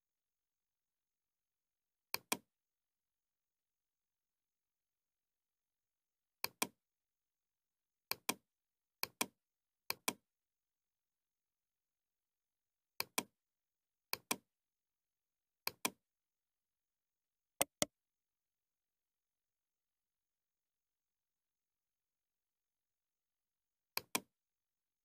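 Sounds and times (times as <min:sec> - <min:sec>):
computer mouse clicking: 0:02.1 - 0:02.4, 0:06.4 - 0:06.7, 0:13.0 - 0:13.3, 0:14.1 - 0:14.4, 0:17.6 - 0:17.9, 0:24.0 - 0:24.3.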